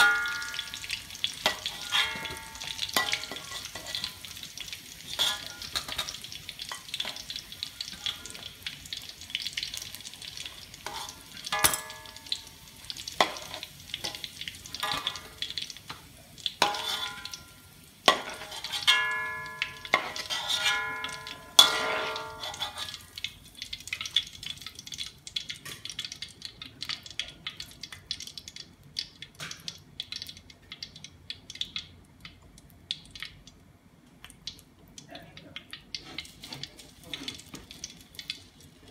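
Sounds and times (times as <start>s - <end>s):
metal spatula striking wok: 0.0s - 4.3s, 5.1s - 8.7s, 10.4s - 16.0s, 16.6s - 23.2s
hot oil sizzling: 0.0s - 38.9s.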